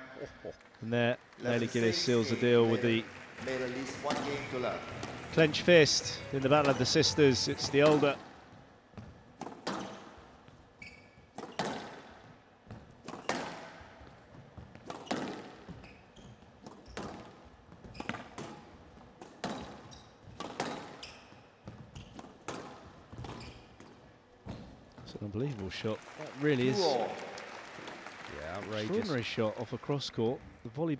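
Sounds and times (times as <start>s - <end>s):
squash racket hits: 3.5s - 8.4s, 9.4s - 10.2s, 11.3s - 15.8s, 16.6s - 21.0s, 21.8s - 24.7s
shoe squeaks: 10.8s - 11.8s, 14.9s - 17.1s, 17.8s - 18.4s, 19.4s - 22.5s, 23.1s - 24.8s.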